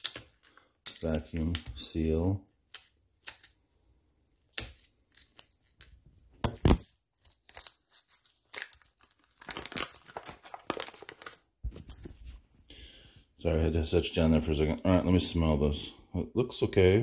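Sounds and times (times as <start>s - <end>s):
foil package crinkling and tearing: 0.0s - 2.1s, 6.5s - 12.0s.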